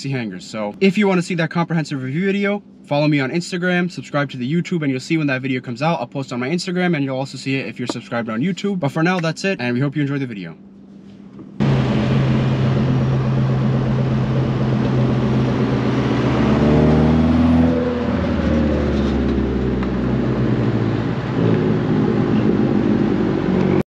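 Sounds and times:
turbocharged car engine revving: 0:11.6 - 0:23.8.

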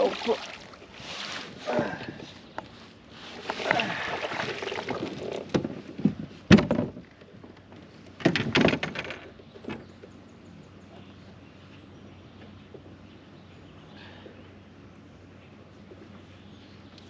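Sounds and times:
water splashing: 0:00.0 - 0:01.3, 0:03.4 - 0:05.5.

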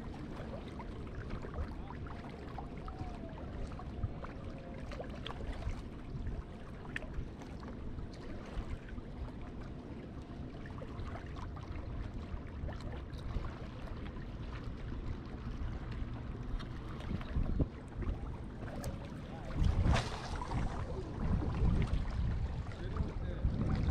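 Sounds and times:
water lapping against rocks: 0:00.0 - 0:23.9
wind rumbling on microphone: 0:10.9 - 0:23.9.

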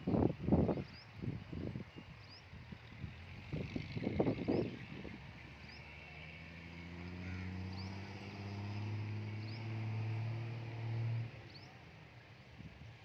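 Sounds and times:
small birds chirping: 0:00.1 - 0:06.1, 0:07.2 - 0:08.5, 0:11.4 - 0:11.8.

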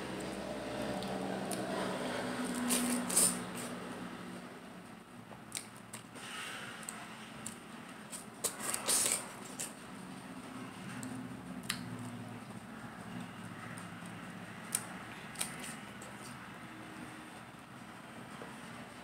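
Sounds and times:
person chewing wetly: 0:14.7 - 0:16.4.

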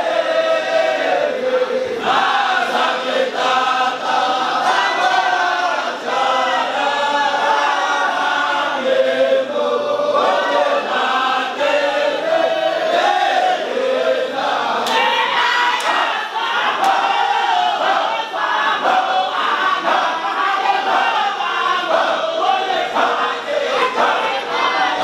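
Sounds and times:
group of men chanting: 0:00.0 - 0:25.0.

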